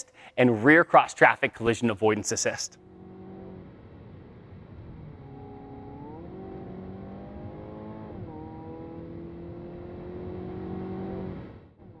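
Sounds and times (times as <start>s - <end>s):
car engine accelerating: 2.7s - 12.0s.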